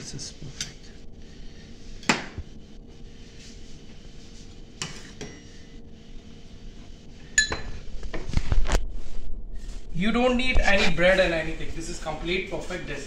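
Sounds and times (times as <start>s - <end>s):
dishes and cutlery clinking: 7.4s - 7.8s.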